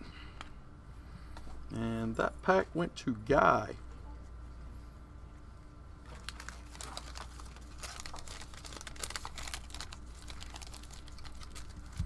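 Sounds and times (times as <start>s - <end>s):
low steady hum: 0.0s - 12.0s
foil wrapper crinkling: 6.0s - 12.0s.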